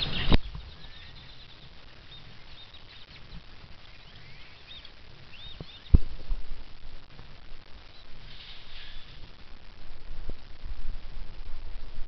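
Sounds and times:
grackles calling: 0:00.0 - 0:06.1, 0:07.8 - 0:09.4.

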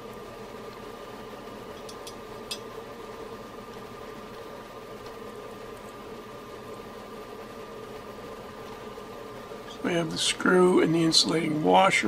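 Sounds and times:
steady background hum and hiss: 0:00.0 - 0:12.0.

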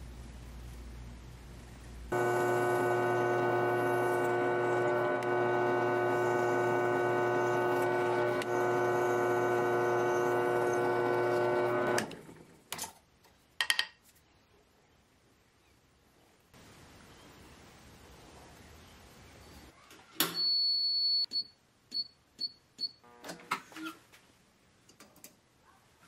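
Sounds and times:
drill bit cutting steel: 0:02.1 - 0:12.2
drill press motor humming: 0:02.1 - 0:12.4.

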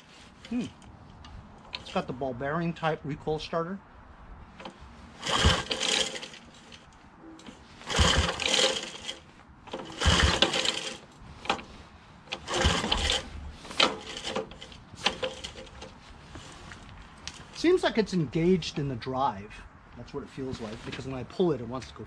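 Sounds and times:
recoil starter rope pulls: 0:00.0 - 0:02.2, 0:04.6 - 0:17.6.

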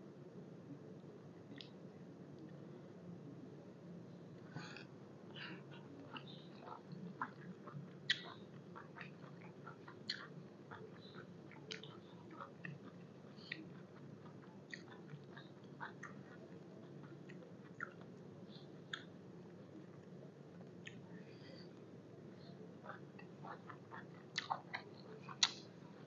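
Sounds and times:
person chewing food: 0:05.4 - 0:21.1, 0:22.8 - 0:26.0.

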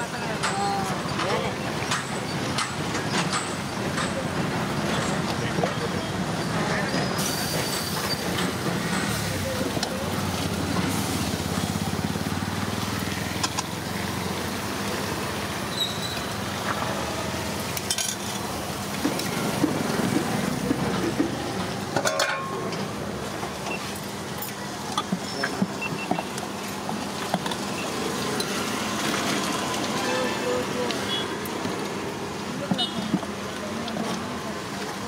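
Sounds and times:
iron pans knocking and scraping: 0:19.2 - 0:22.8
ladle clinking against metal pot: 0:22.0 - 0:22.7.

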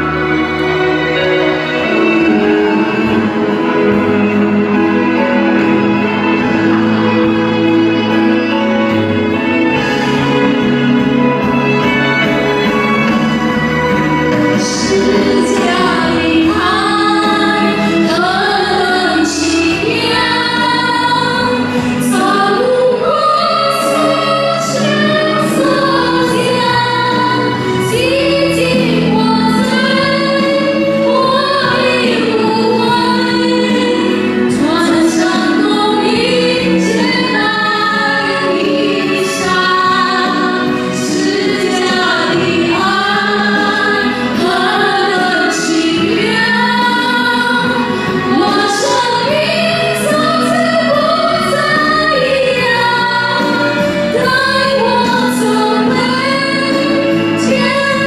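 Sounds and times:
instrumental backing: 0:00.0 - 0:58.0
women singing worship song: 0:14.5 - 0:58.0.

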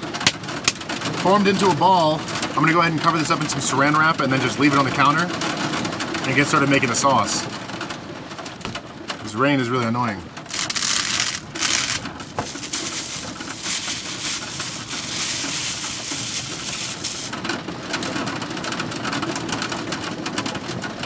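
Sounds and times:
rain and hail on a roof: 0:00.0 - 0:21.0
plastic wrap crinkling: 0:10.5 - 0:17.6.

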